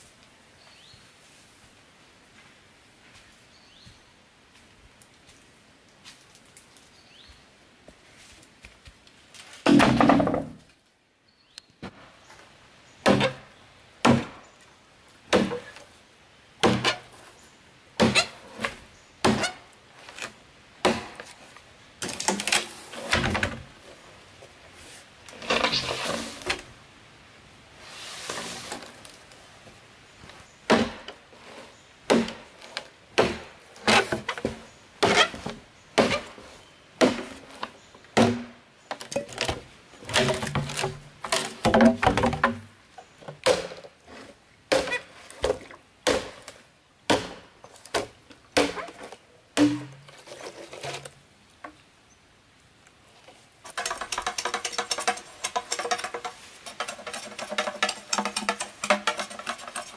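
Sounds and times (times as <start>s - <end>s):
bamboo creaking and cracking: 8.3s - 11.0s, 11.7s - 14.7s, 16.6s - 17.4s, 18.0s - 26.8s, 28.2s - 51.8s, 52.8s - 59.9s
knife chopping bamboo: 15.3s - 15.7s, 32.1s - 32.4s, 38.2s - 38.5s, 47.1s - 48.9s
light tapping on bamboo: 32.1s - 51.8s, 53.2s - 59.9s.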